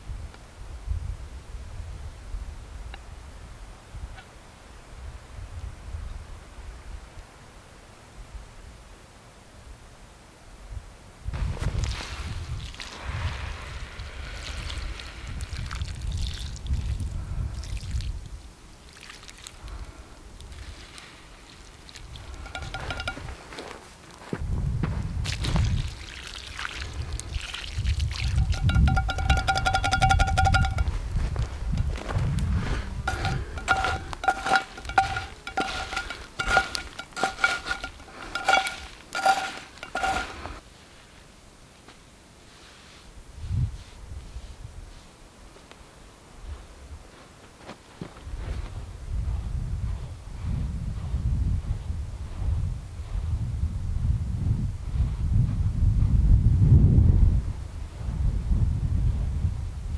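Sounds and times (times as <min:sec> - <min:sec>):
wind rumble on microphone: 0:00.0 - 0:04.2, 0:04.8 - 0:07.1, 0:10.6 - 0:18.6, 0:24.2 - 0:26.0, 0:26.8 - 0:36.8, 0:43.2 - 0:45.1, 0:48.2 - 0:59.9
water trickling and splashing: 0:11.8 - 0:22.8, 0:25.2 - 0:30.5
metal utensil clinking on pot: 0:22.4 - 0:23.3, 0:28.4 - 0:31.0, 0:33.1 - 0:40.4.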